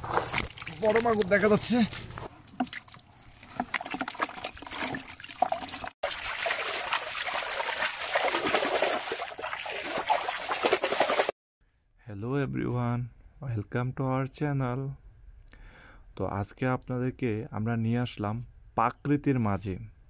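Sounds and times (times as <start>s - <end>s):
water splashing and trickling: 0.0s - 11.4s
rush of water: 4.6s - 11.3s.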